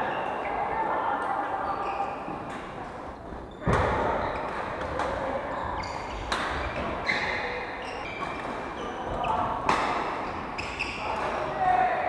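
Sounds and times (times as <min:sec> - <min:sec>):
shoes squeaking on floor: 0:01.6 - 0:04.6, 0:05.5 - 0:09.5, 0:10.3 - 0:11.2
racket hitting shuttlecock: 0:09.6 - 0:11.3.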